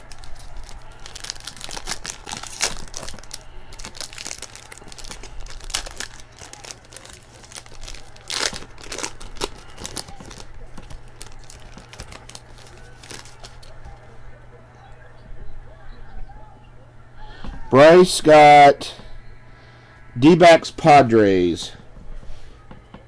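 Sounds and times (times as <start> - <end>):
foil wrapper tearing and crinkling: 0.0 - 14.0.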